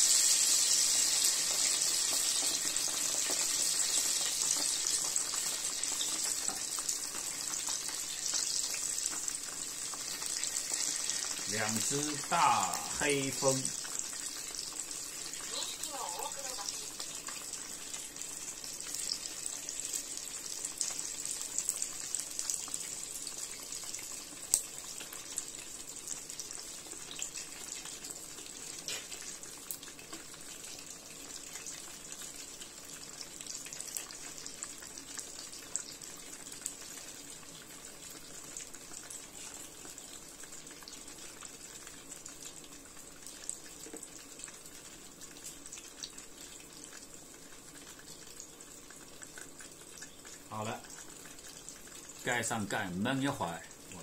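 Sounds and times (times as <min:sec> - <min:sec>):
buns sizzling in hot oil: 0:00.0 - 0:54.0.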